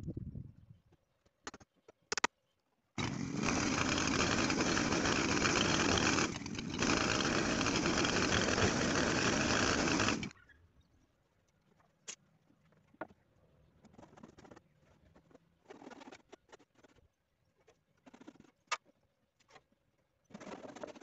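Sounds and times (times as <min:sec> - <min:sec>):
chainsaw cutting wooden boards: 0:03.0 - 0:10.3.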